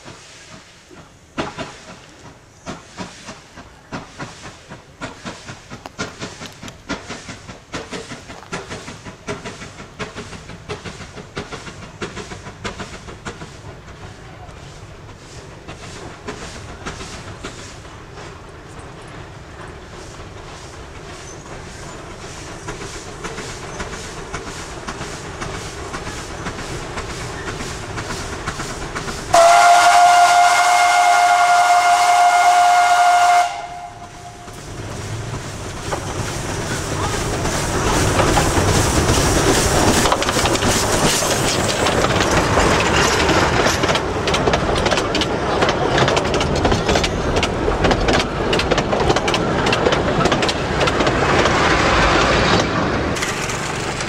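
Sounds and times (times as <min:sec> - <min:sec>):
steam locomotive exhaust beats: 0:00.0 - 0:54.0
train wheels clattering over rail joints: 0:00.0 - 0:54.0
steam whistle blast: 0:29.3 - 0:34.5.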